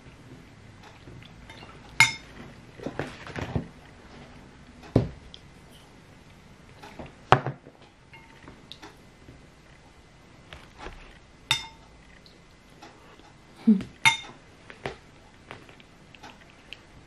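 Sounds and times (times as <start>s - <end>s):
spoon clinking on ceramic plate: 1.5s - 2.3s, 11.5s - 11.8s, 14.0s - 14.3s.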